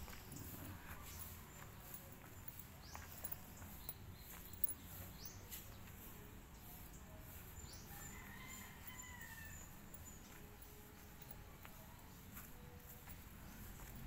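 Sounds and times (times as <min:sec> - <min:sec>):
faint rooster crowing: 0:07.8 - 0:10.4.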